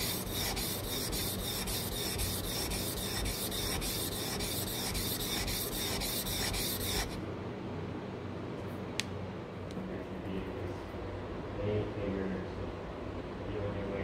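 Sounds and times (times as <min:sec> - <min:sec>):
chisel scraping on sharpening stone: 0:00.0 - 0:07.2.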